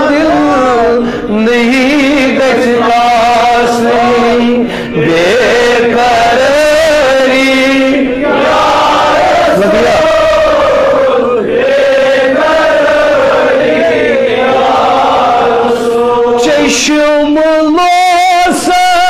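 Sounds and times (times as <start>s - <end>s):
man singing ornamented melody: 0.0s - 8.3s, 9.4s - 10.4s, 15.8s - 19.0s
men chanting in long notes: 0.0s - 19.0s.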